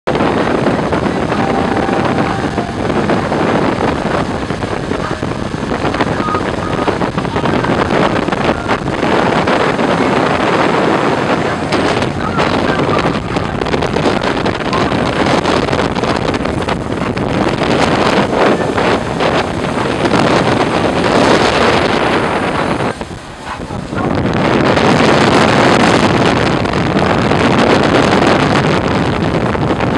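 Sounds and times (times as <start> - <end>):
rush of wake water: 0.1 - 29.9
wind buffeting microphone: 0.1 - 29.9
outboard motors running: 3.6 - 26.2.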